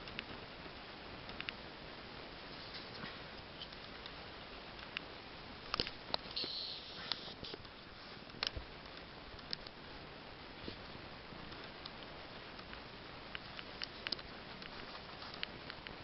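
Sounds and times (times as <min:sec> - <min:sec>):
clicks and light scrapes: 0:02.5 - 0:04.2, 0:12.6 - 0:16.0.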